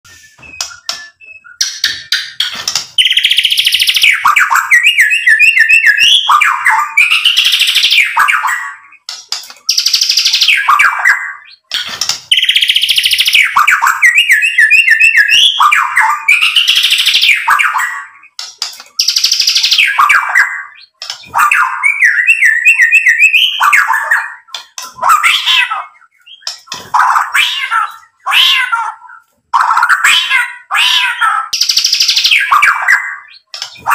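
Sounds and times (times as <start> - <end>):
bird singing whistled phrases: 0.1 - 2.2, 3.0 - 9.0, 12.3 - 18.2, 19.0 - 24.5.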